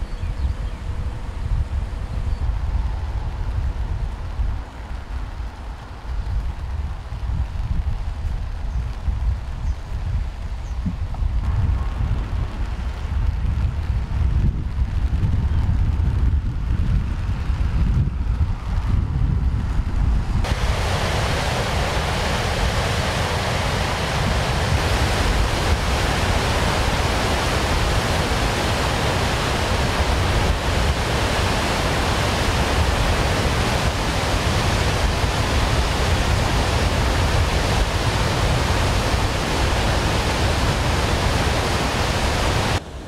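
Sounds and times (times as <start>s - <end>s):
water rushing through spillway: 20.4s - 43.0s.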